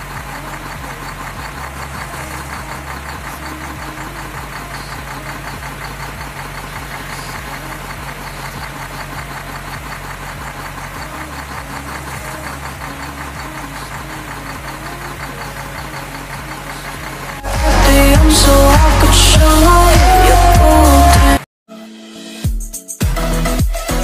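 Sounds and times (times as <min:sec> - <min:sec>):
engine-like knocking hum: 0:00.0 - 0:20.9.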